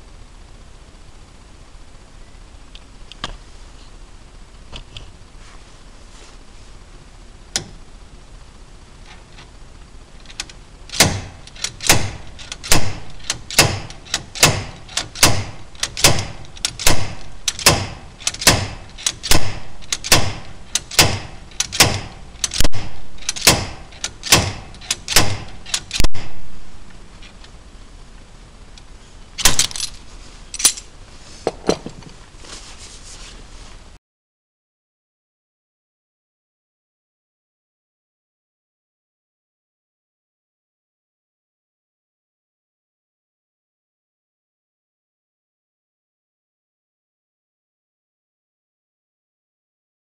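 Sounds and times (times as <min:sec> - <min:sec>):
slide hammer metal clanks: 0:10.3 - 0:26.4, 0:29.4 - 0:30.0, 0:30.6 - 0:30.9.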